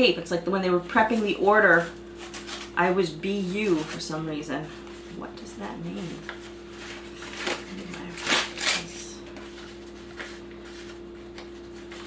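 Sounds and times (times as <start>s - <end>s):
paper wrapping crinkling: 1.0s - 2.8s, 6.0s - 12.0s.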